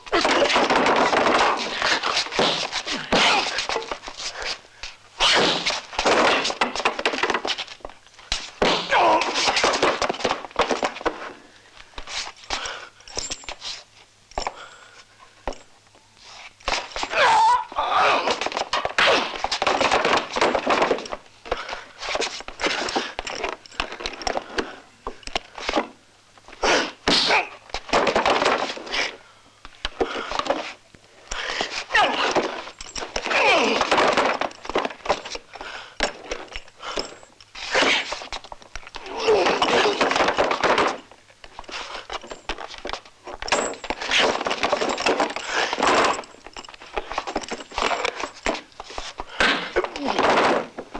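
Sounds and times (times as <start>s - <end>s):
wood crashing and breaking: 0.1s - 3.5s
punches and heavy thuds: 0.1s - 4.0s, 8.3s - 11.1s.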